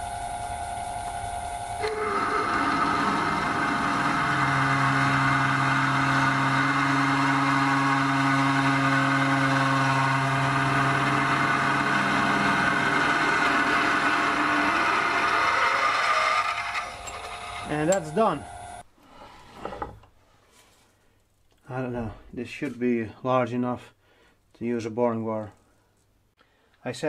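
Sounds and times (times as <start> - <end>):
lathe drilling: 1.8 - 18.8.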